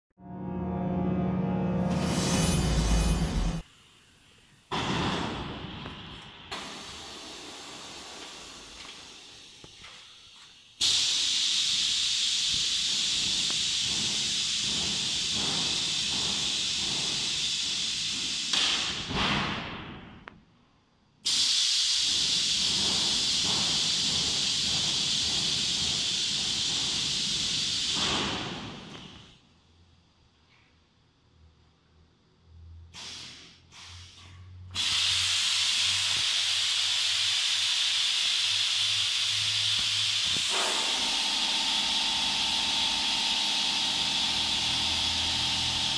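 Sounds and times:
loud air hiss from machine: 6.5s - 19.6s, 21.2s - 29.4s, 32.9s - 45.9s.

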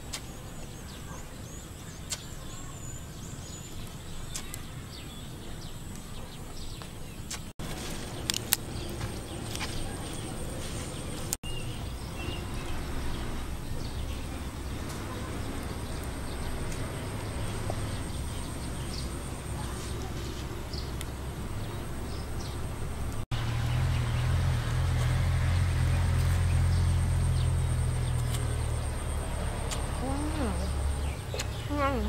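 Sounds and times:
bird chirps: 25.9s - 32.0s.

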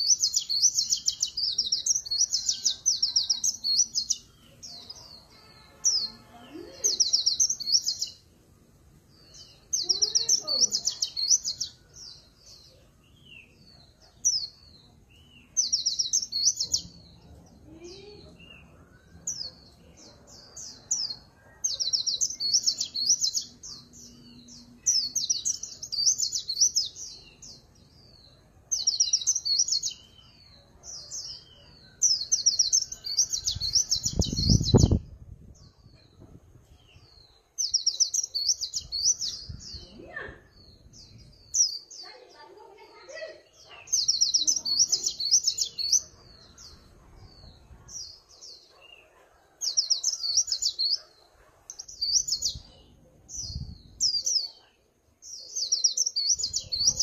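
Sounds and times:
bird trilled warbling song: 31.2s - 36.2s, 55.4s - 57.0s.

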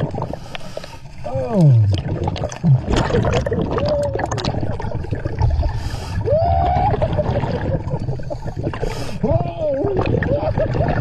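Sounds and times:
low bubbly underwater rumble: 0.0s - 0.4s, 1.2s - 11.0s.

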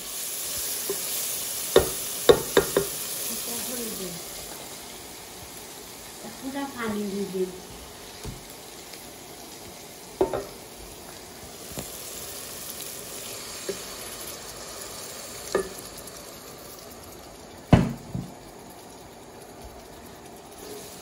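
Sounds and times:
onions sizzling in a pot: 0.0s - 21.0s
knocks against a pot: 1.8s - 2.9s, 10.2s - 10.5s, 17.7s - 18.3s.

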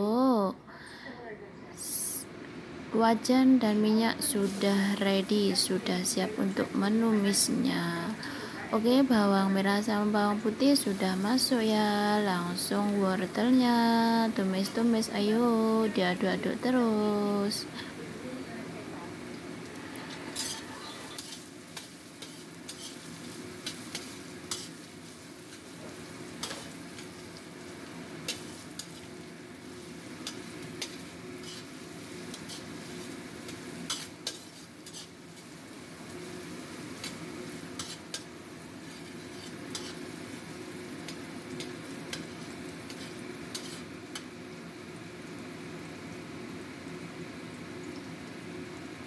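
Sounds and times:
vegetables sizzling in oil: 1.8s - 49.0s
metal spatula scraping a wok: 20.0s - 24.9s, 26.4s - 27.1s, 28.2s - 29.1s, 29.8s - 35.5s, 37.0s - 40.2s, 42.1s - 44.2s.

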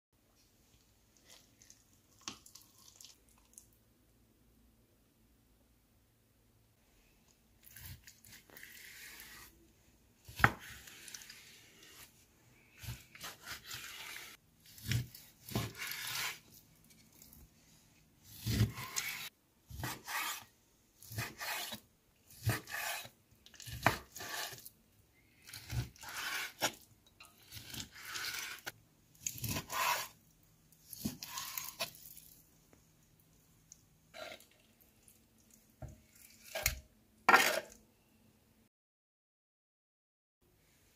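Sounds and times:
knife slicing raw meat: 12.8s - 16.5s, 18.2s - 24.7s, 25.4s - 26.8s, 27.5s - 30.2s, 30.9s - 32.2s.

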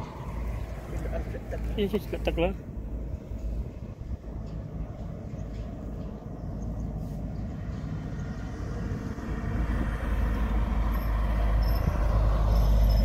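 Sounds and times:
wind noise on microphone: 2.7s - 13.0s.

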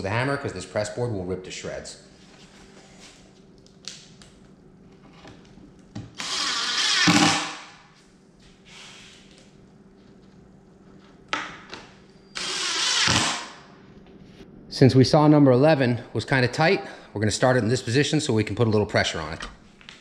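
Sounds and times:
cordless drill running: 6.2s - 7.5s, 12.4s - 13.6s.

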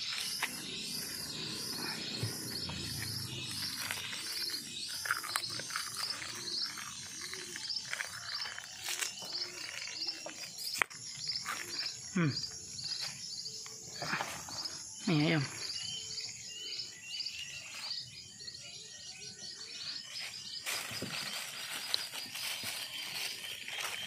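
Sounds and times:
insects chirping: 0.0s - 24.0s.

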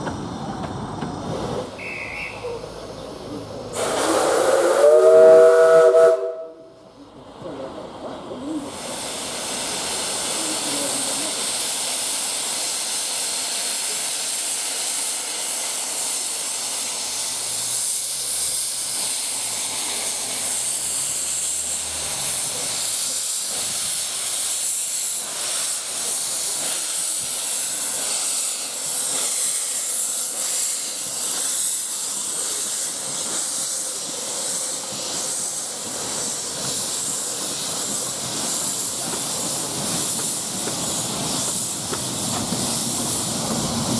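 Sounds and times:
steam locomotive hissing steam: 0.1s - 43.9s.

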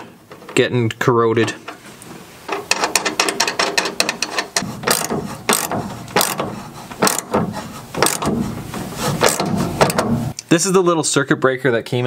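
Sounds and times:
ratchet wrench clicking: 3.7s - 7.3s, 8.0s - 8.3s.

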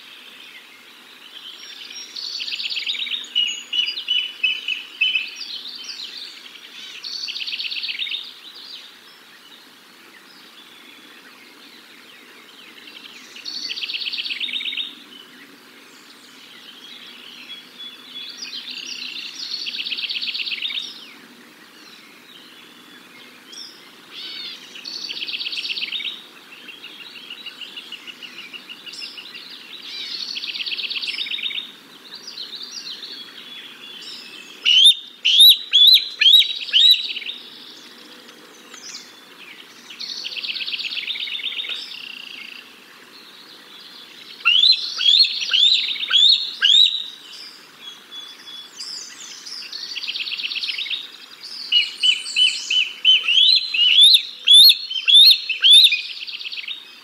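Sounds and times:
young eagle chirping squeals: 34.7s - 37.1s, 44.5s - 47.0s, 52.1s - 56.0s.

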